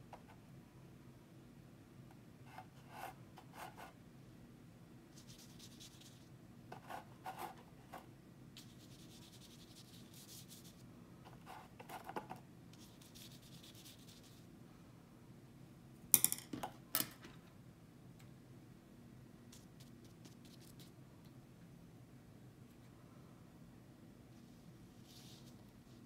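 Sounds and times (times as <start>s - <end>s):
paintbrush scrubbing on paper: 8.6s - 10.8s, 12.8s - 14.4s.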